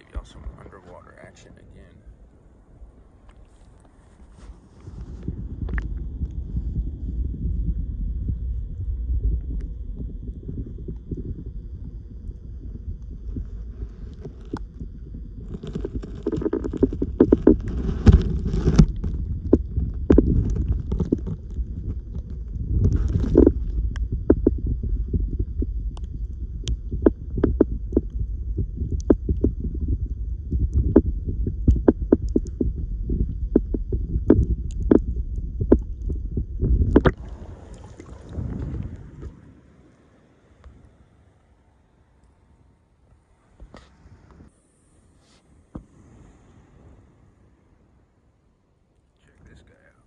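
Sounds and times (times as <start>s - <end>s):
underwater water rumble: 0.0s - 50.0s
sharp underwater clicks and knocks: 5.2s - 6.4s, 13.0s - 37.2s.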